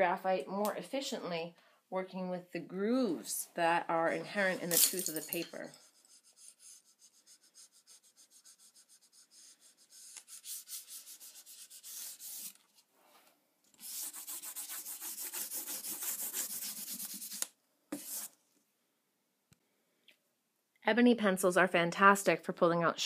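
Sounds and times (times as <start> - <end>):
pencil scratching on paper: 5.5 - 12.6, 13.8 - 18.3.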